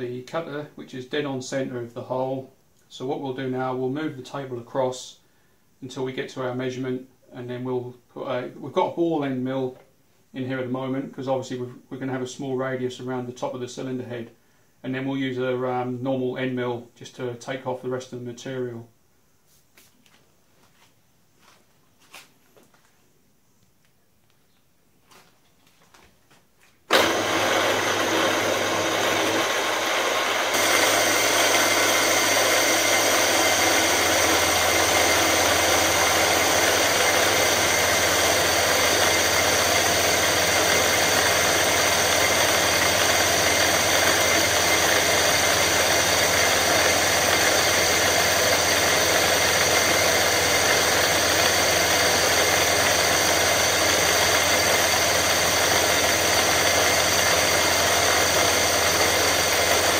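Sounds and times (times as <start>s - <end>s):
end mill cutting aluminium: 26.9s - 59.9s
milling machine spindle whine: 26.9s - 59.9s.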